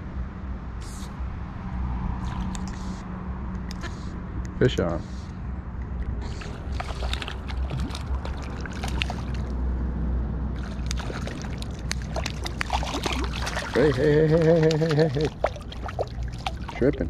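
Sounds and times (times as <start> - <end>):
river water splashing: 6.2 - 9.7, 10.5 - 17.0
low water rumble: 6.2 - 17.0.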